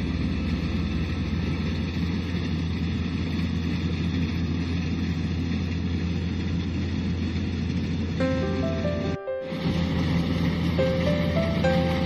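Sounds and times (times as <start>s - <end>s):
combine harvester diesel engine: 0.0s - 12.0s.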